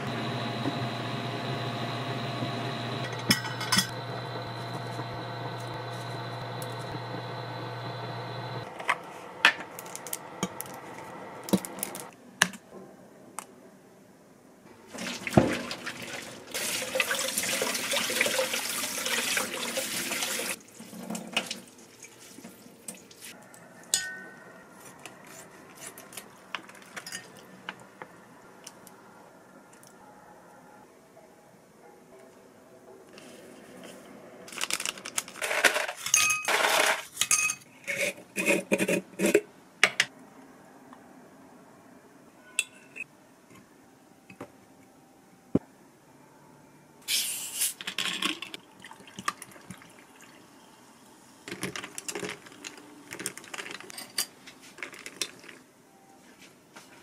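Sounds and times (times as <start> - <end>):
appliance hum with high tone: 0.0 - 12.1
dishes and utensils clinking: 3.1 - 4.0, 23.8 - 24.4, 26.7 - 27.4, 36.0 - 40.1
water tap running: 14.9 - 21.6.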